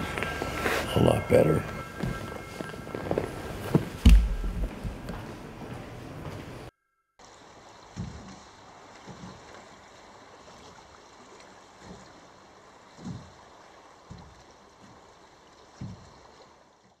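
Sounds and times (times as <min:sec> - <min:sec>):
soft low thumps: 0:04.0 - 0:05.2
river water flowing: 0:07.2 - 0:17.0.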